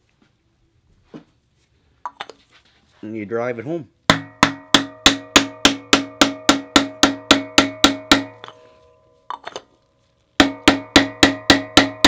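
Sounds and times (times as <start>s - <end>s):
hammer tapping metal tool: 4.1s - 9.7s, 10.4s - 12.0s.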